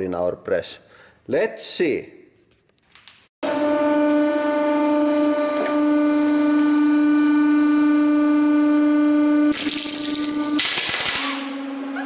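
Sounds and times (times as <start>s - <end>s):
hydraulic press humming: 3.4s - 12.0s
caps crushed and going off: 9.5s - 11.5s.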